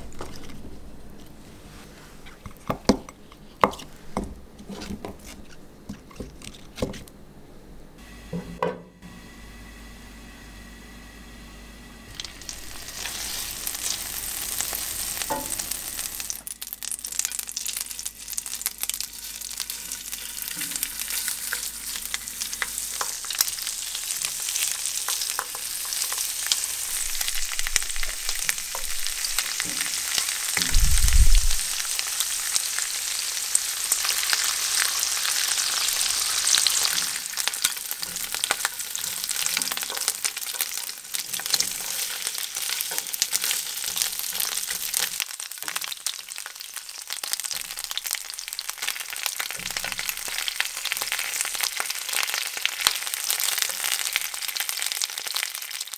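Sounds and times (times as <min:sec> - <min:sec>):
squid sizzling in a frying pan: 0:12.1 - 0:55.9.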